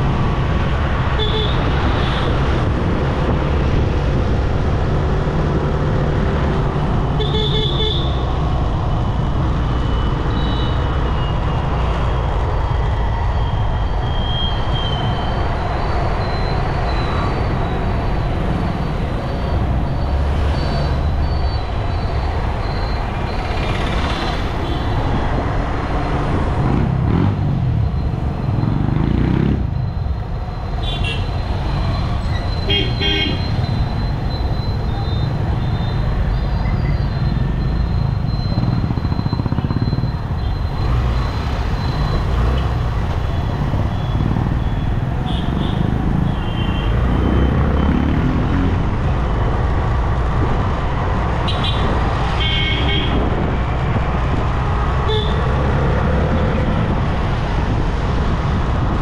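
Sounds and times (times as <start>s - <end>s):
motorcycle wind and engine rumble: 0.0s - 59.0s
vehicle horn toot: 32.7s - 33.5s.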